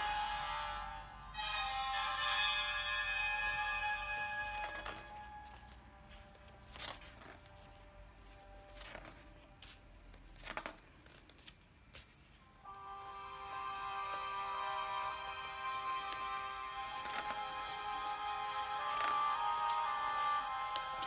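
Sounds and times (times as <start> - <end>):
background music: 0.0 - 7.8, 12.4 - 21.0
book pages turning: 0.1 - 0.9, 3.1 - 21.0.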